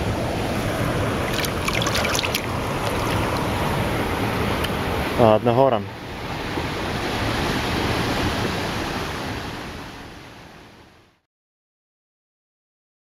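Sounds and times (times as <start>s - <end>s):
river water rushing over rocks: 0.0s - 5.2s.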